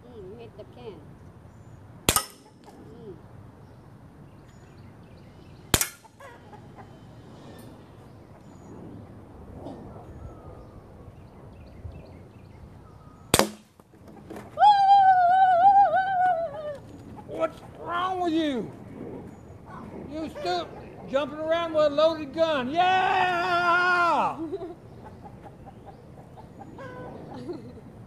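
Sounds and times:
air pistol shots: 2.1 - 2.6, 5.7 - 6.1, 13.4 - 13.8
woman whooping: 14.5 - 16.9.

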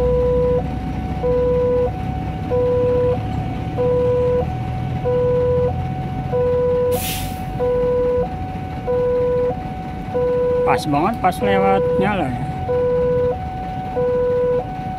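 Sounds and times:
low traffic rumble: 0.0 - 14.9
level crossing two-tone alarm: 1.2 - 14.9
short hiss: 7.0 - 7.4.

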